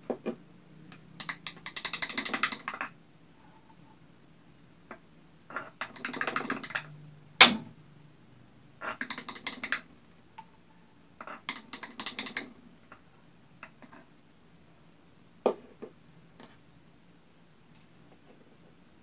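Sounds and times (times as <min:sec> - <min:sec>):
sharp knock: 0:07.4 - 0:07.8.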